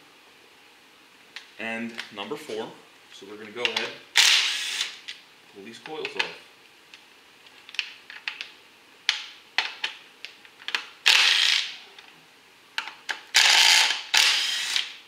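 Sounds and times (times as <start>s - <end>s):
cordless power driver spinning bolts: 13.4s - 14.9s.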